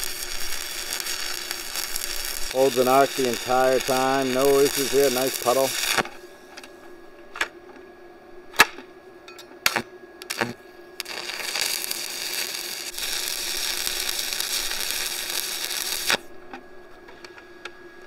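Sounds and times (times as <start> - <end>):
welding arc hissing: 0.0 - 6.3, 9.7 - 16.3.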